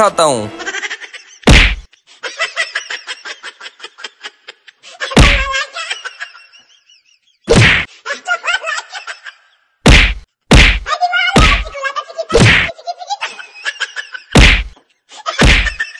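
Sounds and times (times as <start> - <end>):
wooden stick whacks: 1.5 - 1.9, 7.5 - 7.9, 9.9 - 11.6, 12.4 - 12.7, 14.4 - 14.8, 15.4 - 15.6.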